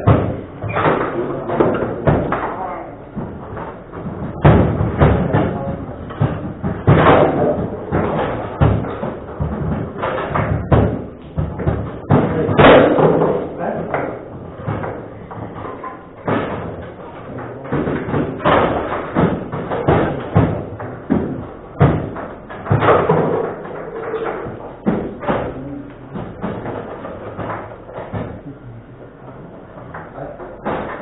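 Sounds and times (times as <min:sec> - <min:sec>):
table football knocks and thuds: 0:00.0 - 0:28.5.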